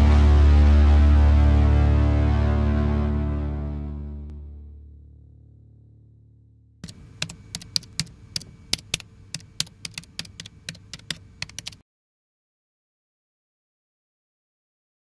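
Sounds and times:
keyboard typing clicks: 6.8 - 11.8.

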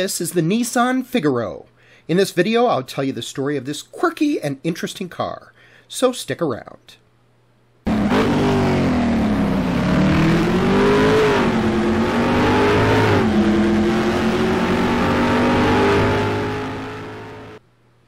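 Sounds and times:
car engine accelerating hard: 7.9 - 17.6.

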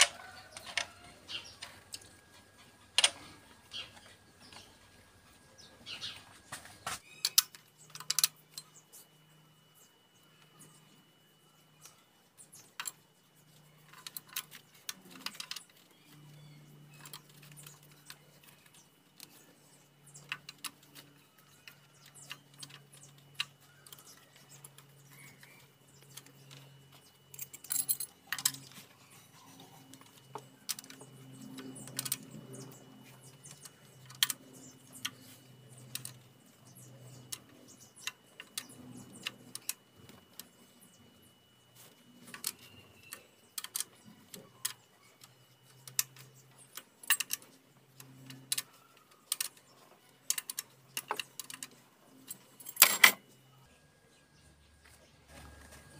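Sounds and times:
engine running with low hum: 14.9 - 43.2.

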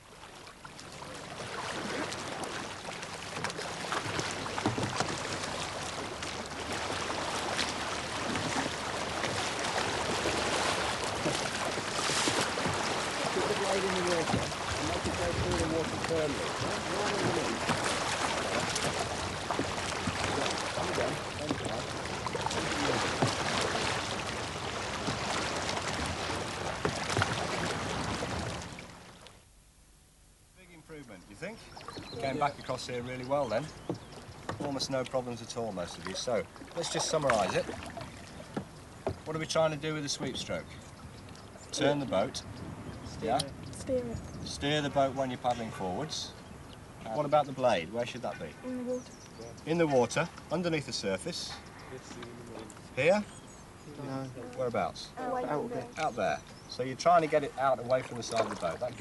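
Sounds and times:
steady wash of water: 0.0 - 29.2, 31.4 - 48.9, 54.0 - 59.0
paddles splashing in water: 0.0 - 29.4, 30.9 - 59.0.

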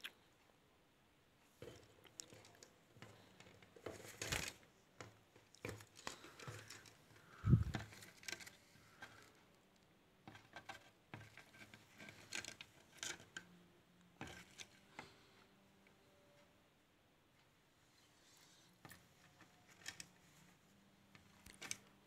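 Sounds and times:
bird beak tapping and scraping: 1.6 - 9.4, 10.2 - 13.4.

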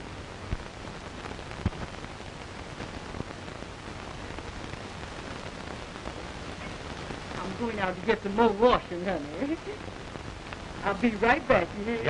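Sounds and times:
film soundtrack hiss: 0.0 - 12.0
clicks and pops: 1.5 - 2.0, 10.4 - 10.7.

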